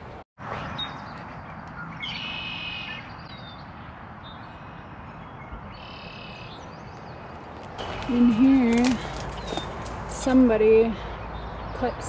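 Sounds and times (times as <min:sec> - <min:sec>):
songbird trilling and chirping: 0:05.3 - 0:12.0.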